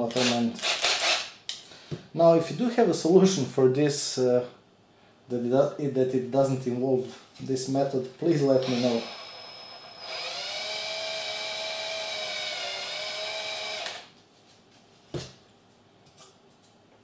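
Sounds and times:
cordless drill whining: 8.6s - 14.1s.

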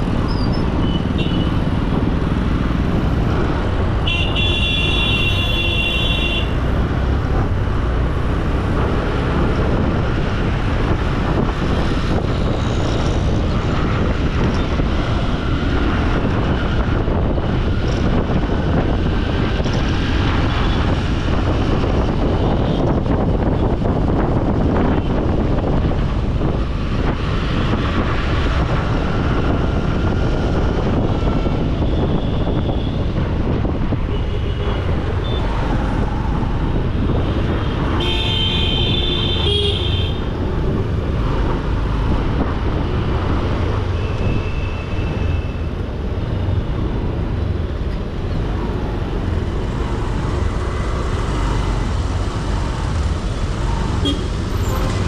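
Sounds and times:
traffic rumble: 0.0s - 55.0s
vehicle horn honking: 38.0s - 40.2s, 54.0s - 54.3s.

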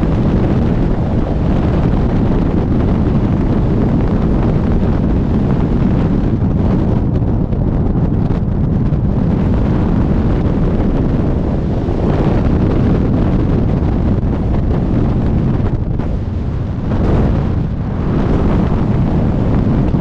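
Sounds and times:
freefall wind buffeting microphone: 0.0s - 20.0s.

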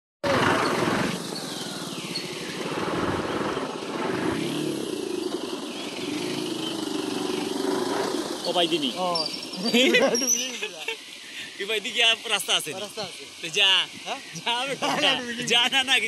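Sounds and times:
motorcycle engine at low speed: 0.2s - 9.6s.

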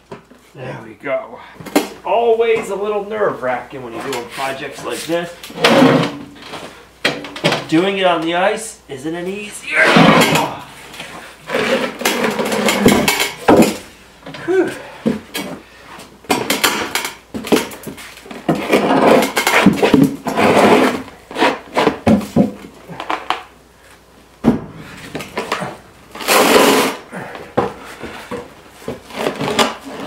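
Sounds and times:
concrete slab scraping on board: 26.2s - 27.0s.

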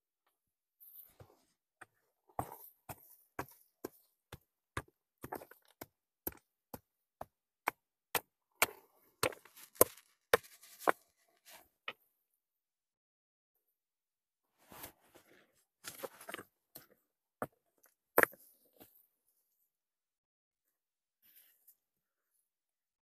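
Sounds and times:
stone knocking and scraping dirt: 1.2s - 11.2s, 15.8s - 18.9s.

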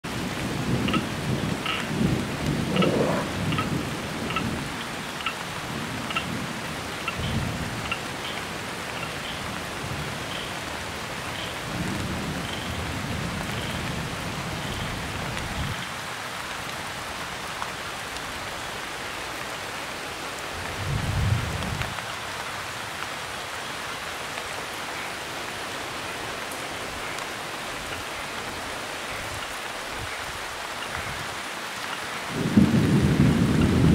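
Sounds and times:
heavy rain pouring: 0.0s - 33.9s
thunder rolling: 0.6s - 4.7s, 32.3s - 33.9s.

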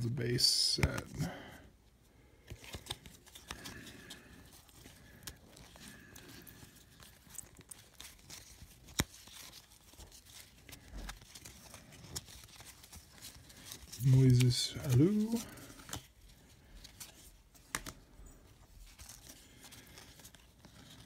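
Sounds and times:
cards sliding and flicking: 0.7s - 1.2s, 2.4s - 16.1s, 16.8s - 18.1s.

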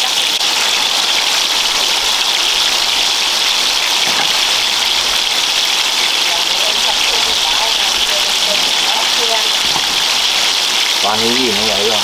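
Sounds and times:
food sizzling in hot oil: 0.0s - 12.0s.

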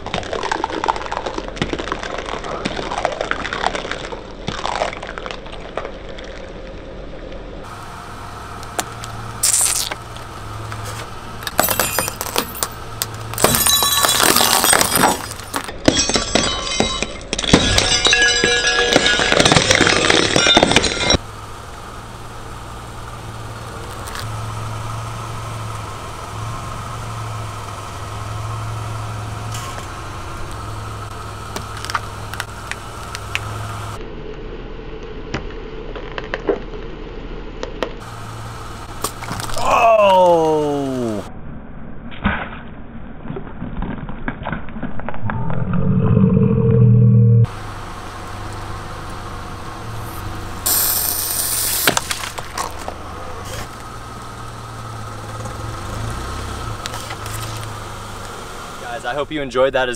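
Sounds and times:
squishing under tyre: 0.0s - 6.9s, 8.8s - 15.8s
car engine idling: 5.6s - 34.0s, 37.8s - 41.3s, 47.2s - 59.9s
tyre crushing household items: 10.9s - 21.2s.

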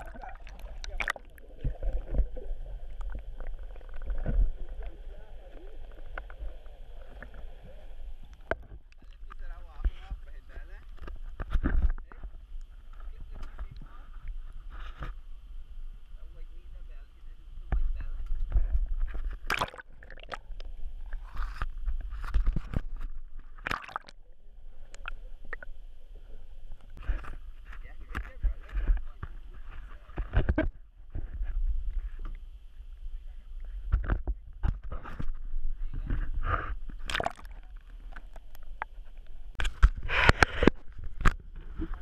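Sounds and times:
water sloshing and splashing: 0.0s - 9.5s, 18.6s - 24.2s, 36.9s - 42.0s.

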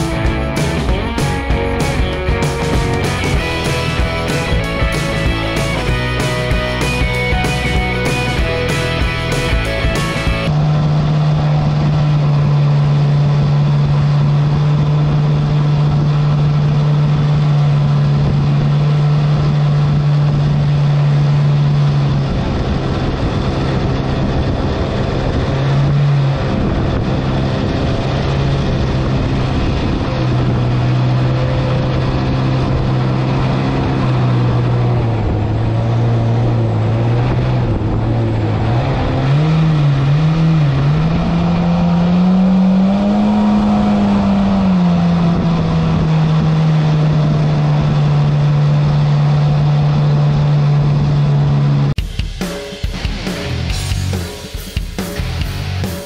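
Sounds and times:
jet boat engine running: 0.0s - 52.0s
wind: 0.0s - 52.0s.

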